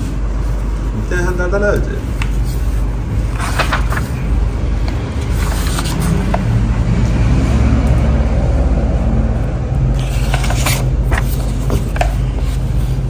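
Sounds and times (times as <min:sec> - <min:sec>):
laundry machines rumbling: 0:00.0 - 0:13.0
book pages rustling: 0:01.8 - 0:06.6, 0:09.9 - 0:13.0.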